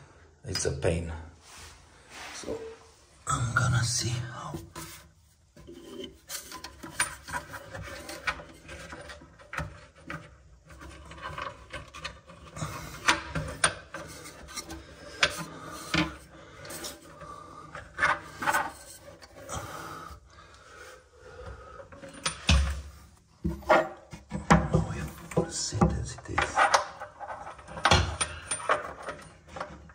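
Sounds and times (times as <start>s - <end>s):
plastic pipe fitting scraping and clicking: 4.6s - 19.6s.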